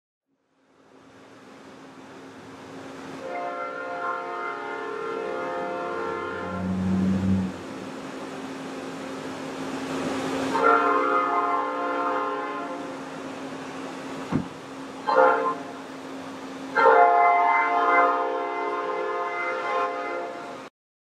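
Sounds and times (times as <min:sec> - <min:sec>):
train horn blasts: 0:03.2 - 0:07.9, 0:10.5 - 0:13.0, 0:15.0 - 0:15.9, 0:16.7 - 0:20.7
steady low hum: 0:05.4 - 0:09.9
brief lower tone: 0:06.4 - 0:07.6.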